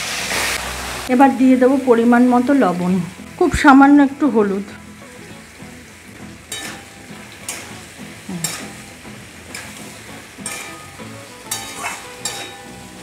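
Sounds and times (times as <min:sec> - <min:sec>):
vegetables sizzling in oil: 0:00.0 - 0:13.0
metal spatula scraping pan: 0:06.5 - 0:07.8, 0:08.4 - 0:13.0.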